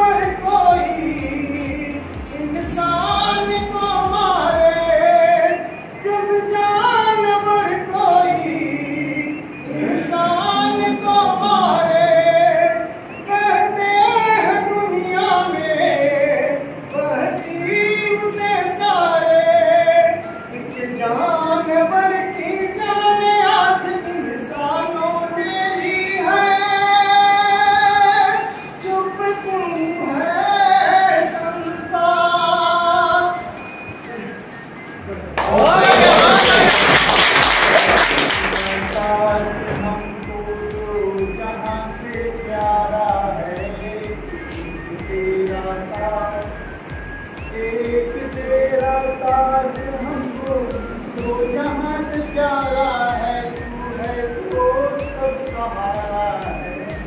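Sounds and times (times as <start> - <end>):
women singing together: 0.0 - 29.2.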